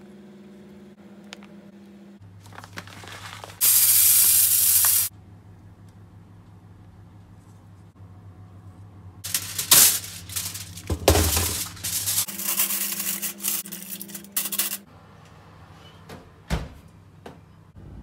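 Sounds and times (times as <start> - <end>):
aluminium foil crinkling: 2.4 - 4.0, 9.2 - 14.8.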